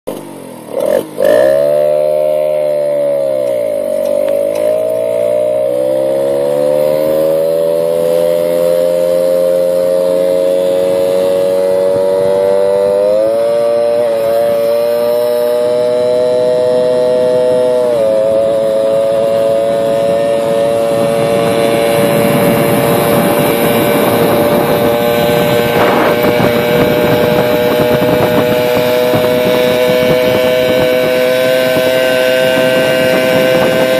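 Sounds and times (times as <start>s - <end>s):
moped engine revving: 0.1s - 33.9s
wind rush: 17.4s - 33.9s.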